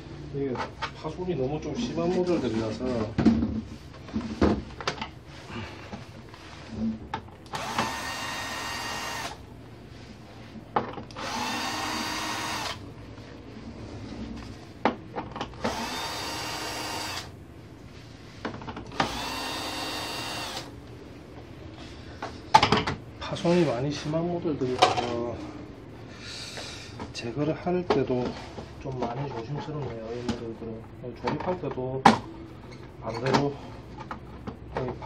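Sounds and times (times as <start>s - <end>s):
electric screwdriver running: 7.5s - 9.4s, 11.2s - 12.8s, 15.6s - 17.3s, 18.9s - 20.7s.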